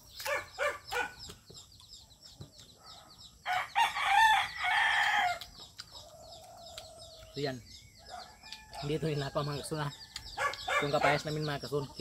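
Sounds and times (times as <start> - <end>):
rooster crowing: 3.5 - 5.4.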